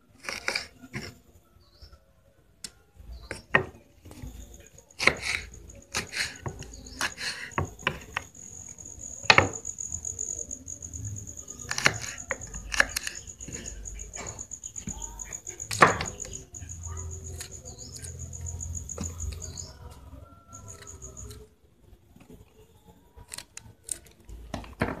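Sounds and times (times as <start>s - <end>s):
cricket chirring: 3.2s - 21.6s
wooden cutting board knocks: 15.8s - 16.2s.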